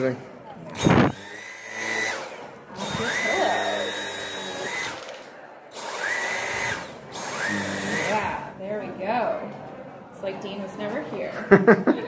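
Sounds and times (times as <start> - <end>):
vacuum cleaner whine: 0.8 - 5.2, 5.8 - 8.4.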